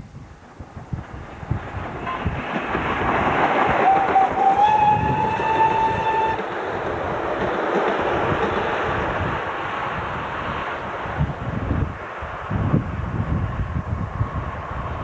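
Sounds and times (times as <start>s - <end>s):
train rumble and wheel clatter: 0.0s - 15.0s
steam whistle: 3.7s - 6.5s.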